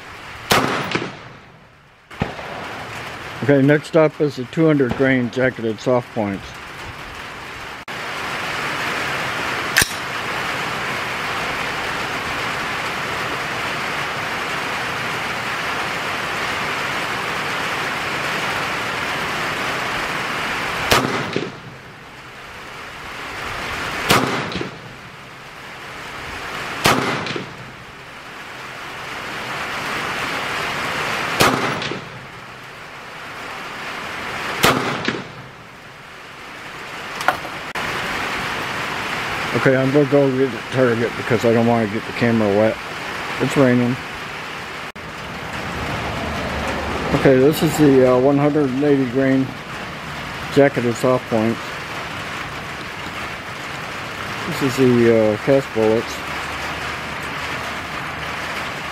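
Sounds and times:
rain hissing: 0:00.0 - 0:58.9
rifle shots: 0:00.4 - 0:03.4, 0:09.7 - 0:10.2, 0:20.8 - 0:21.8, 0:24.0 - 0:25.0, 0:26.8 - 0:27.8, 0:31.2 - 0:32.3, 0:34.5 - 0:35.6
sharp snap: 0:09.8 - 0:10.1, 0:34.6 - 0:35.3.

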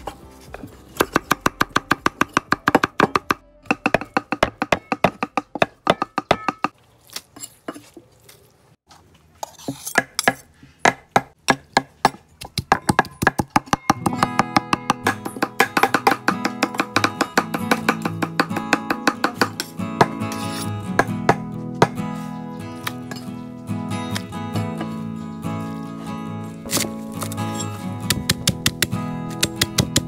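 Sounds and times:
cleavers chopping on wood: 0:10.0 - 0:20.2, 0:21.0 - 0:22.0, 0:28.1 - 0:30.0
guitar music: 0:14.0 - 0:30.0.

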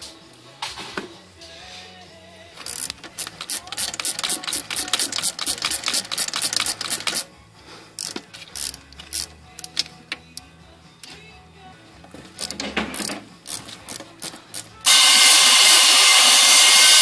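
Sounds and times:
ratchet wrench clicking: 0:02.6 - 0:07.3, 0:08.0 - 0:10.5, 0:12.3 - 0:17.0.

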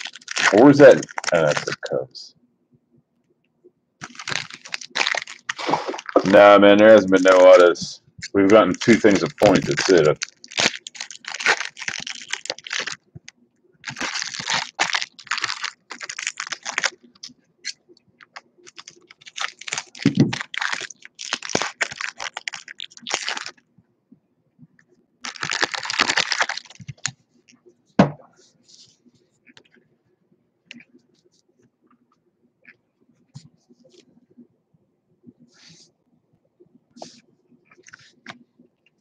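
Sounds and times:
foil packs crinkling and tearing: 0:00.0 - 0:02.0, 0:04.0 - 0:06.4, 0:08.3 - 0:13.0, 0:13.8 - 0:23.6, 0:25.2 - 0:27.1.

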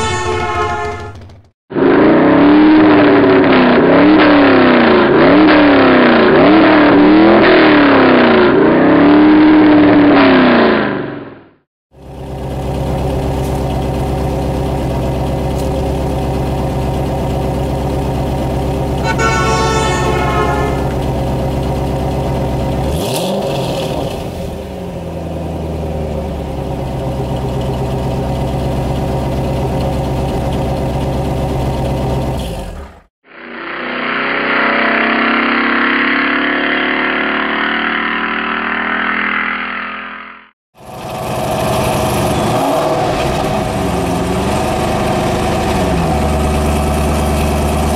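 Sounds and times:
brief rising tone: 0:00.0 - 0:01.4, 0:19.0 - 0:21.3, 0:33.3 - 0:40.3
car engine idling: 0:11.9 - 0:23.3, 0:24.1 - 0:33.0.

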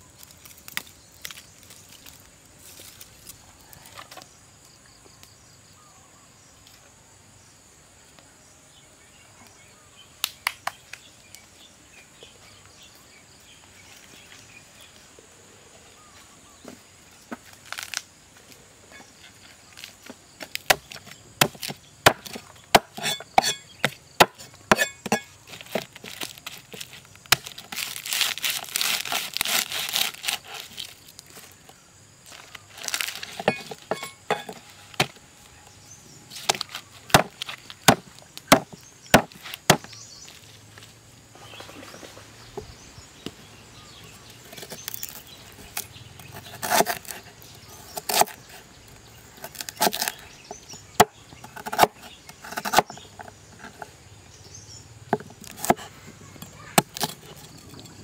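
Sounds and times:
cleaver chopping on wooden board: 0:20.6 - 0:25.9, 0:36.4 - 0:39.9, 0:55.1 - 0:55.9.

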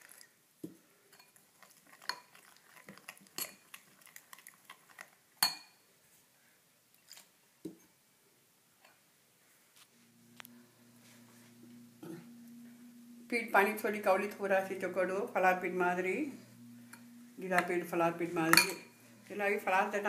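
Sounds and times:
spoon clinking against glass bowl: 0:05.4 - 0:05.8.

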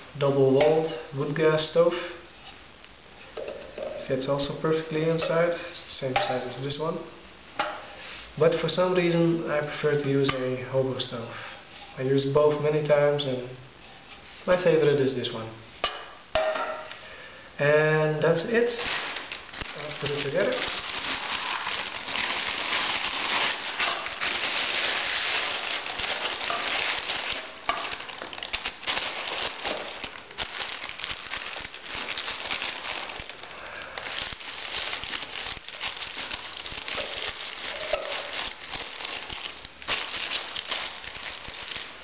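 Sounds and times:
plastic bag crinkling: 0:18.4 - 0:42.0
nylon sack rustling: 0:18.5 - 0:42.0.

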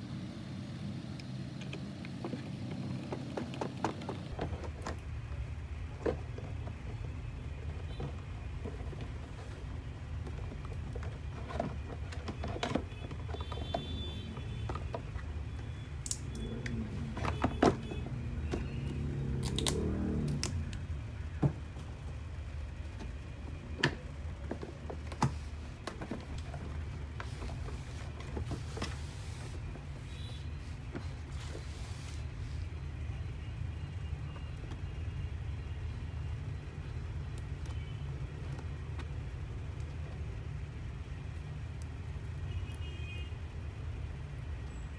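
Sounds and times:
plastic parts clicking and knocking: 0:01.7 - 0:22.2, 0:22.8 - 0:29.1.

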